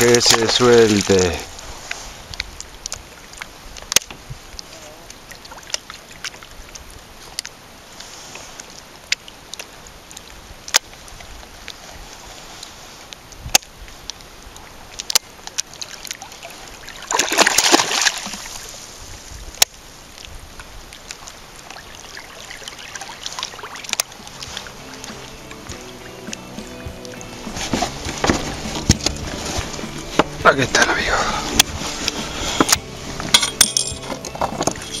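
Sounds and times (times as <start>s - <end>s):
fish splashing at surface: 15.7s - 18.8s
lapping water: 20.9s - 33.2s
background music: 24.0s - 35.0s.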